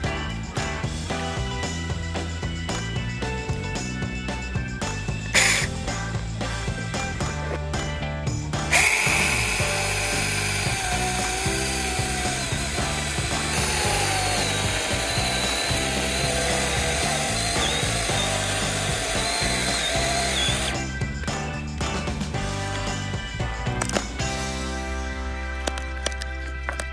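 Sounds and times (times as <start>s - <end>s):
chainsaw cutting wood: 5.4s - 5.7s, 8.7s - 20.9s
chainsaw motor whine: 8.7s - 21.0s.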